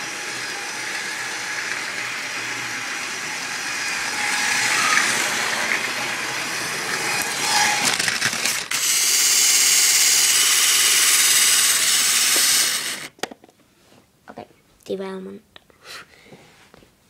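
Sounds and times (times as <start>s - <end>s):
toy train whirring and rattling: 0.0s - 13.1s.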